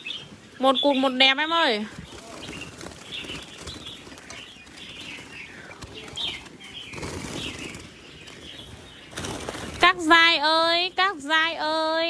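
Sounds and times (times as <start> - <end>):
bird chirps and calls: 0.0 - 12.0
birds flapping wings against mesh: 1.4 - 10.9.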